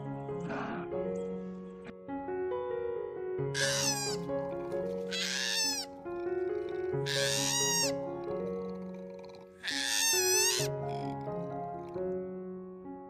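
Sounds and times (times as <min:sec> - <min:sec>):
background music: 0:00.0 - 0:13.0
animal harsh cry: 0:03.6 - 0:12.0.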